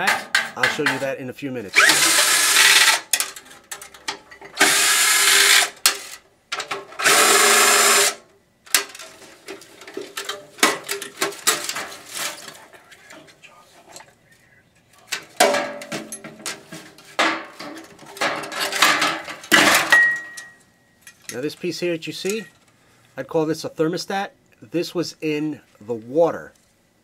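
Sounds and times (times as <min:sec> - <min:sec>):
metal parts clattering: 0:00.0 - 0:01.2, 0:01.8 - 0:04.7, 0:08.7 - 0:13.2, 0:15.1 - 0:22.6
power drill running: 0:01.8 - 0:03.1, 0:04.6 - 0:06.2, 0:07.0 - 0:08.2.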